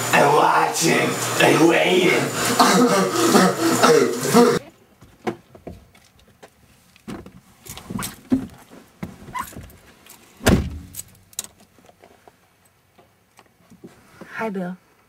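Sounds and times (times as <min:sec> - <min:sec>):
rustling and knocks: 0:05.0 - 0:12.3
car door shutting with a thud: 0:10.4 - 0:10.9.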